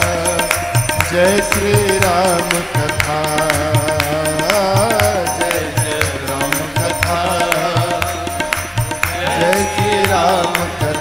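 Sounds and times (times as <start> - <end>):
congregation clapping in time: 0.0 - 11.0
devotional music with drum beat: 0.0 - 11.0
person singing: 9.1 - 11.0.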